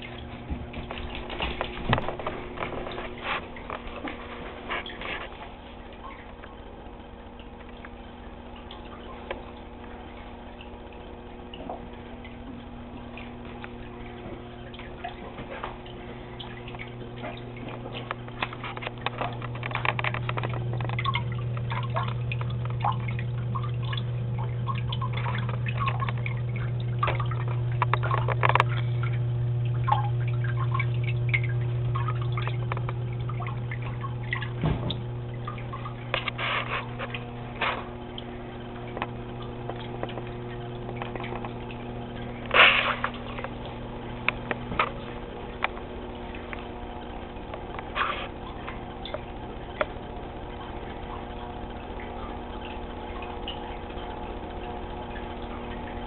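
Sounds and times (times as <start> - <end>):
aquarium equipment humming: 0.0 - 56.0
deep hum: 0.0 - 56.0
water dripping and trickling: 0.0 - 56.0
small clicks and taps: 16.4 - 21.7, 27.1 - 28.8, 38.9 - 41.6.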